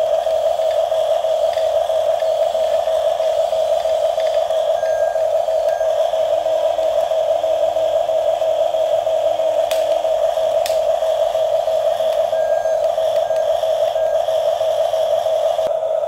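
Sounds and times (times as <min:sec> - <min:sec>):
electronic engine drone: 0:00.0 - 0:16.0.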